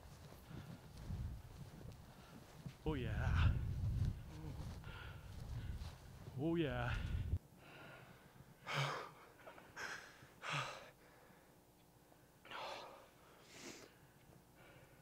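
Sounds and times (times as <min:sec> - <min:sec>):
person breathing hard: 0:03.2 - 0:06.1, 0:06.9 - 0:11.6, 0:12.5 - 0:15.0.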